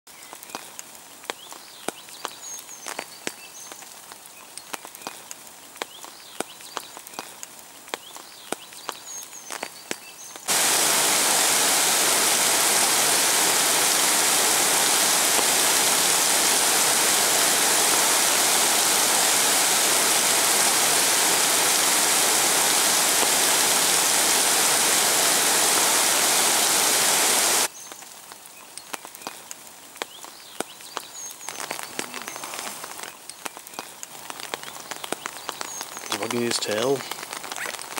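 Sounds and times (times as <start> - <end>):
rain falling on water: 0.1 - 37.9
water pouring over a weir: 10.5 - 27.7.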